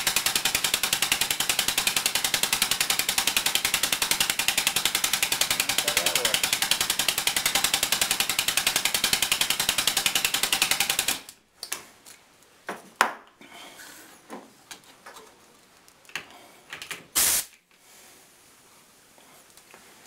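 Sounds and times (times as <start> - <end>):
two-stroke engine running fast: 0.0 - 11.3
fittings clicking and knocking: 0.0 - 11.8
hose coupling hiss: 17.2 - 17.6.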